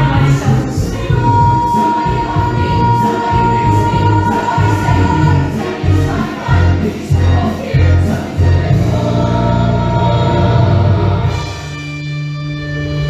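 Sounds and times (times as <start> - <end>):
cast singing together: 0.0 - 11.7
band playing: 0.0 - 13.0.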